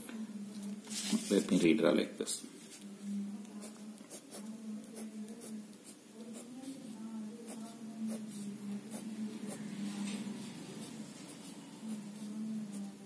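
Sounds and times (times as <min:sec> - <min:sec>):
pen drawing on paper: 0:03.6 - 0:13.0.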